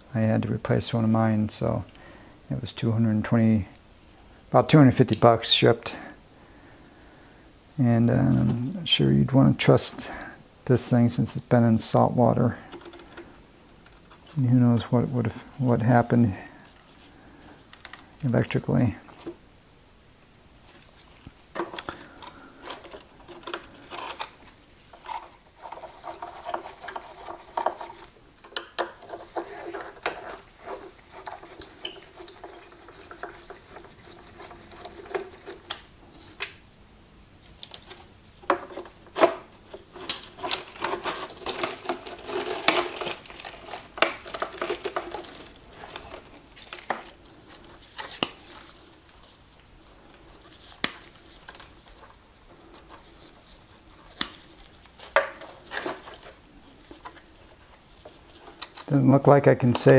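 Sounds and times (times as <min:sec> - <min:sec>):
scraping and rustling: 0:20.6 - 0:36.6, 0:37.4 - 0:59.9.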